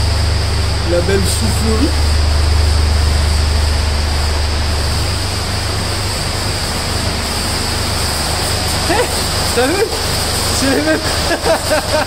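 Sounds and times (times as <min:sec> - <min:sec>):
cooling fan blowing air: 0:00.0 - 0:12.0
low hum: 0:00.0 - 0:12.0.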